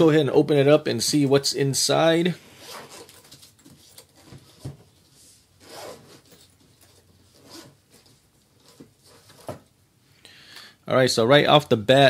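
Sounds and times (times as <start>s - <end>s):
zipper being pulled open: 2.5s - 3.3s, 5.6s - 8.0s.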